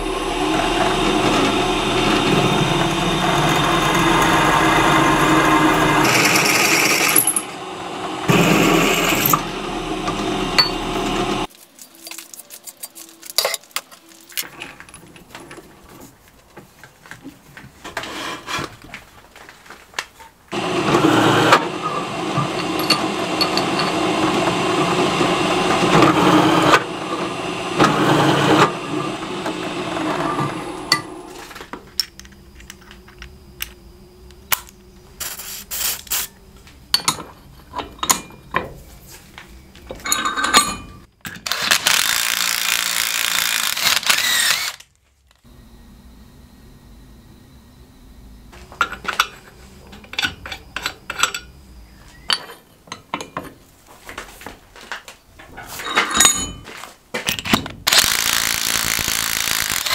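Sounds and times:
drill press cutting steel: 0:00.0 - 0:11.5, 0:20.6 - 0:31.4, 0:41.5 - 0:44.8, 0:57.9 - 0:59.9
power drill driving a tap: 0:41.5 - 0:44.9, 0:57.9 - 0:59.9.

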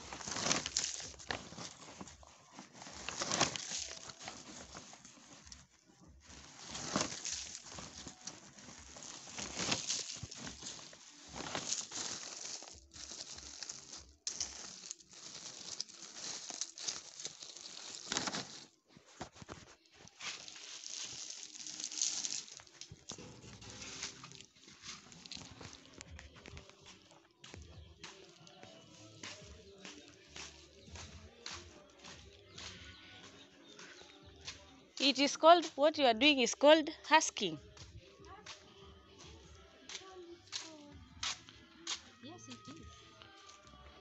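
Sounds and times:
dry bean pods rustling: 0:00.0 - 0:33.8.

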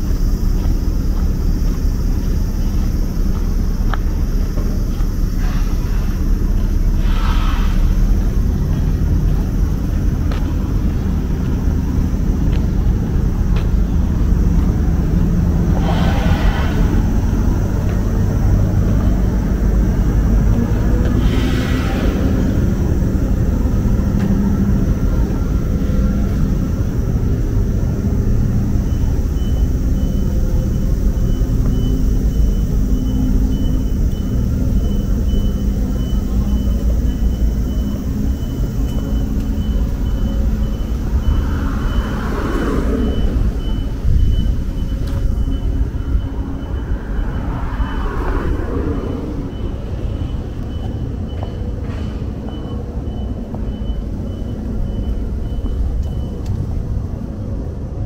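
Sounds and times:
street traffic rumbling: 0:00.0 - 0:58.0
high electronic beeps: 0:28.4 - 0:56.5.

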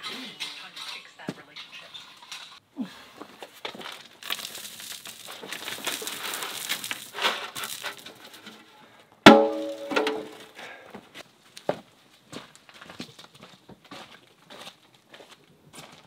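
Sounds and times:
metal pail clanging: 0:00.0 - 0:02.6, 0:05.8 - 0:10.6
scraping on concrete: 0:00.0 - 0:02.6, 0:03.2 - 0:10.7.

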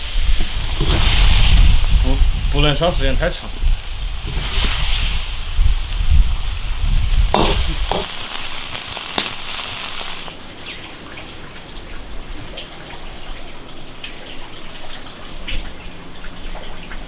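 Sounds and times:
food sizzling in a wok: 0:00.0 - 0:10.3.

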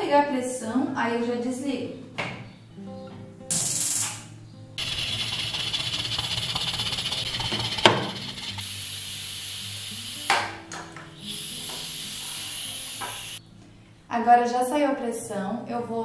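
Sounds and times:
sharp click: 0:03.5 - 0:04.3
pressure cooker valve hissing steam: 0:03.5 - 0:10.6, 0:11.2 - 0:13.4.

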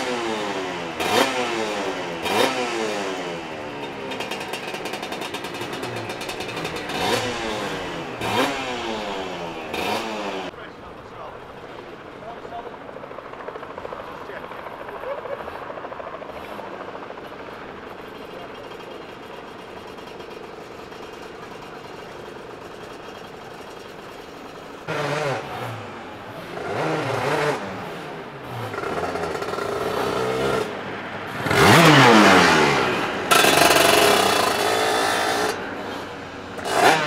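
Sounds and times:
background engine drone: 0:00.0 - 0:37.0
two-stroke kart engine revving: 0:00.0 - 0:37.0.

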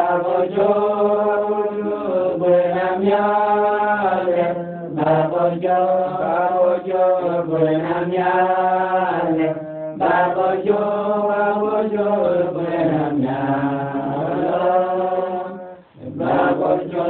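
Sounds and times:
voices singing slow chant: 0:00.0 - 0:17.0.

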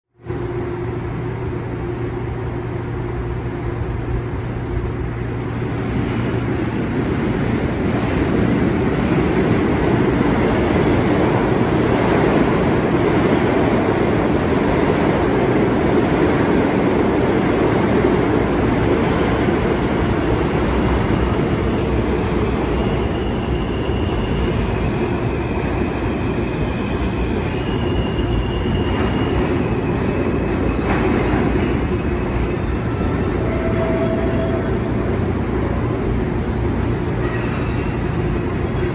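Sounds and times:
subway train rumbling in tunnel: 0:00.2 - 0:38.9
high wheel squeals: 0:26.2 - 0:38.9.

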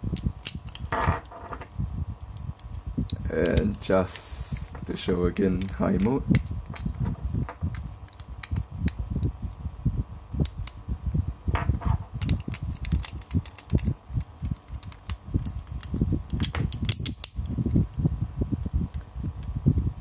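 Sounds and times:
handling rubbing noise: 0:00.0 - 0:09.7
plastic parts clicking: 0:00.2 - 0:03.8, 0:05.0 - 0:08.6, 0:12.2 - 0:17.8.

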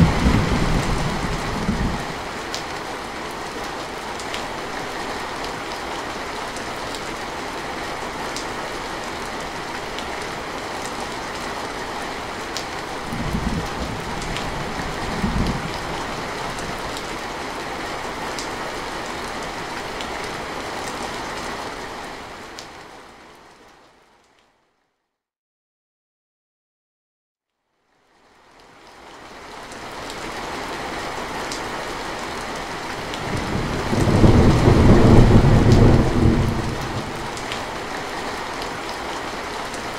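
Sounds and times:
low thunder rumbles: 0:00.0 - 0:02.3, 0:13.0 - 0:16.4, 0:33.2 - 0:37.6
heavy rain on metal roof: 0:00.0 - 0:24.4, 0:28.2 - 0:39.9.

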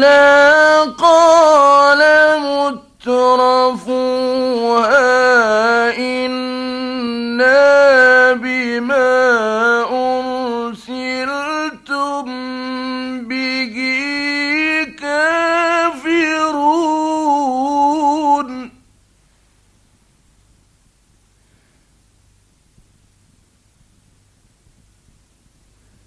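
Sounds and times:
man chanting melismatic recitation: 0:00.0 - 0:18.8.

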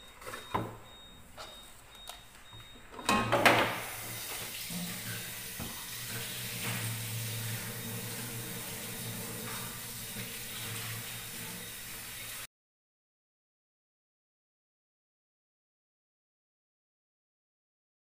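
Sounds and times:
running water: 0:03.8 - 0:12.5.

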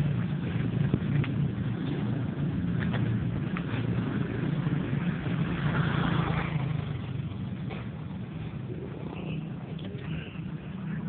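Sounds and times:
small motorcycle engine passing: 0:00.0 - 0:11.0
steady low rumble: 0:00.0 - 0:11.0.

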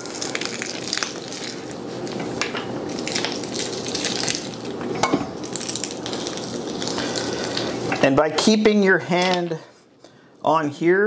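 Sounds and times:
sausage meat squishing and crackling: 0:00.0 - 0:08.0.

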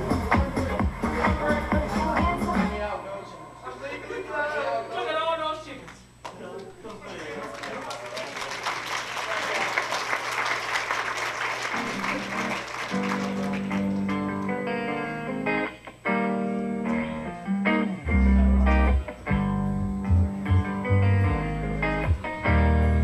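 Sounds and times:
heavy bass: 0:00.0 - 0:02.8, 0:18.0 - 0:23.0
applause: 0:06.2 - 0:14.3
plucked guitar song: 0:11.8 - 0:23.0.

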